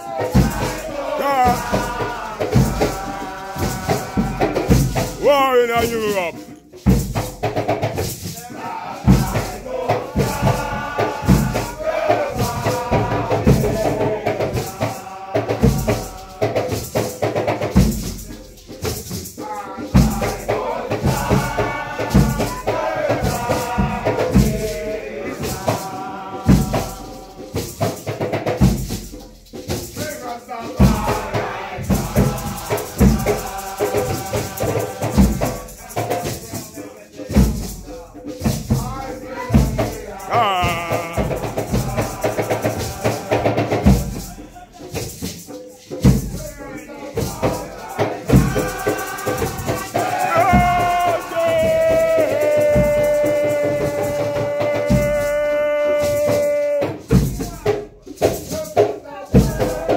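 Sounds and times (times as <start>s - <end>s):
group chanting: 0.0s - 6.5s, 8.2s - 17.6s, 19.4s - 27.9s, 30.1s - 45.0s, 46.1s - 57.3s, 59.0s - 59.9s
lighter hand drum strokes: 0.1s - 5.3s
slow bass drum beat: 0.4s - 7.3s, 39.6s - 42.5s
rattles shaking: 0.7s - 8.5s, 31.8s - 59.9s
deep bass drum beats: 39.6s - 42.2s.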